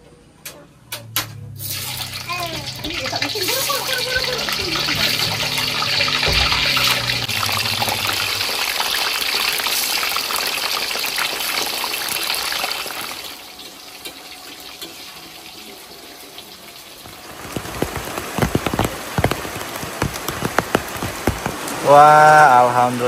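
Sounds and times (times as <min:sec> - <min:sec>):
rain falling: 0:01.4 - 0:14.5, 0:15.1 - 0:23.0
large raindrops splatting: 0:01.6 - 0:13.3, 0:17.0 - 0:22.6
hot oil sizzling in a wok: 0:01.6 - 0:17.4.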